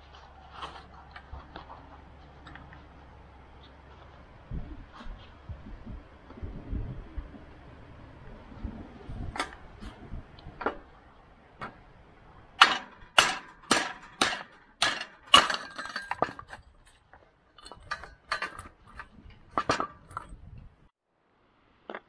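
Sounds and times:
hammer striking metal: 12.6s - 16.3s
metal clinking on metal: 12.6s - 20.4s.

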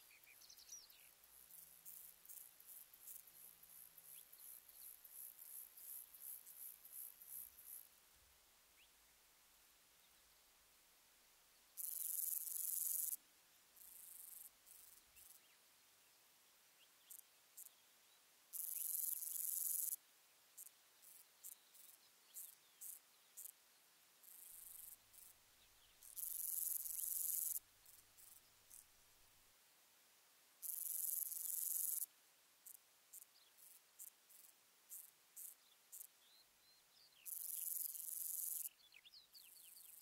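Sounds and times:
grasshopper ticks: 1.3s - 7.9s, 11.8s - 13.2s, 13.8s - 15.4s, 18.5s - 20.0s, 20.6s - 23.6s, 24.2s - 25.4s, 26.0s - 28.9s, 30.6s - 36.1s, 37.3s - 38.7s.

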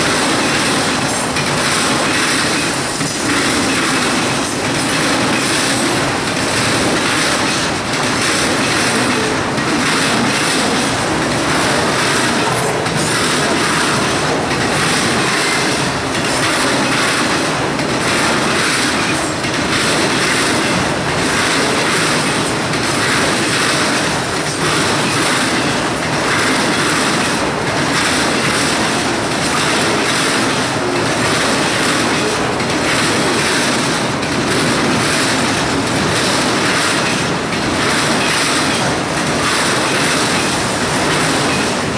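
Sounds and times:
freight train wheels on rail: 0.0s - 41.9s.

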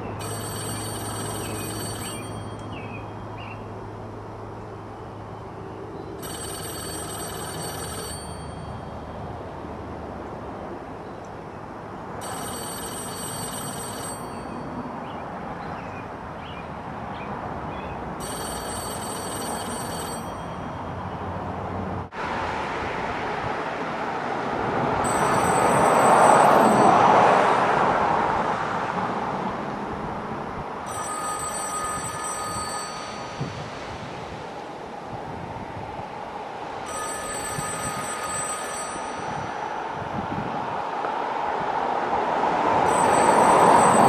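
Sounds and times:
payphone ringing: 0.0s - 3.3s, 6.2s - 9.4s, 12.2s - 14.9s, 18.2s - 21.1s, 25.0s - 27.5s, 30.8s - 34.1s, 36.8s - 40.2s, 42.8s - 44.0s
broad rushing noise: 21.3s - 44.0s.

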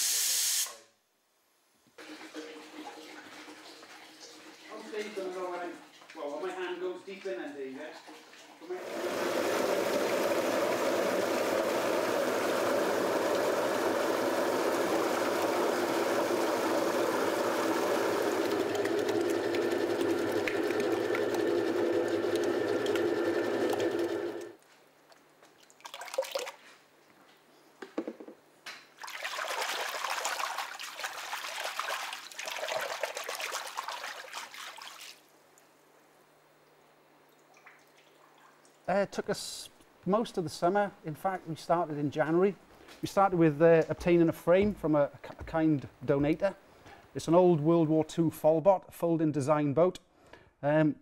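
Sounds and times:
water splashing and pouring: 2.0s - 24.0s, 25.6s - 26.7s, 29.0s - 35.3s, 37.3s - 38.8s
pulp beater sloshing drone: 8.7s - 24.5s.

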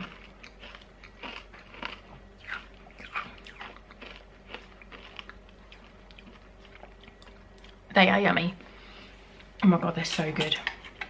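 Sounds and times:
chewing hard candies: 0.0s - 7.8s.

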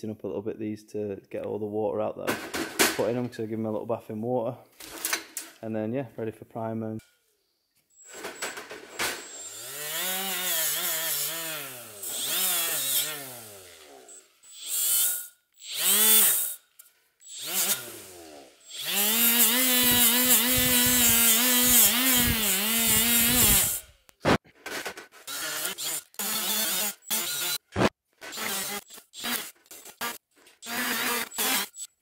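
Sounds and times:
grinding wheel scraping metal: 8.0s - 16.6s
die grinder motor whine: 9.0s - 16.6s, 17.2s - 23.9s, 25.3s - 31.9s.

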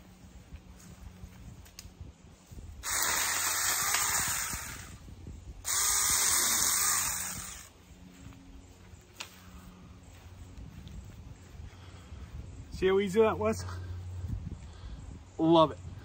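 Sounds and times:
electric chainsaw cutting brush: 2.8s - 7.8s.

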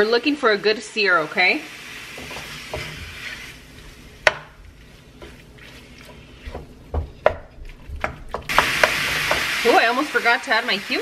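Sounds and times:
spatula scraping frying pan: 1.9s - 4.2s.

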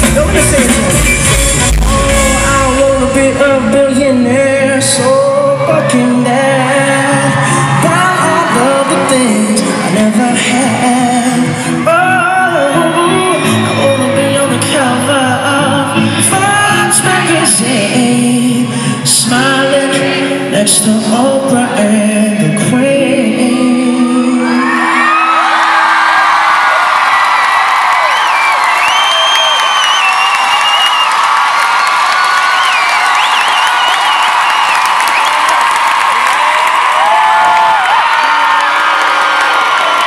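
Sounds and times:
person singing: 0.0s - 25.4s
electric guitar: 0.0s - 25.8s
live pop band: 0.0s - 27.1s.

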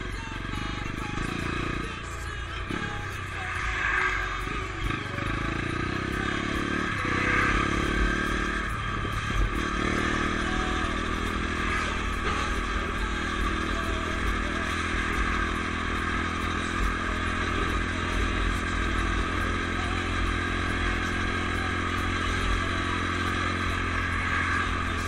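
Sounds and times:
dirt bike engine running: 0.0s - 25.0s.

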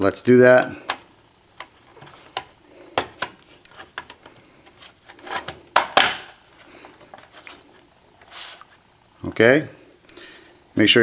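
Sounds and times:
plastic clicks and rubbing: 1.6s - 6.2s.

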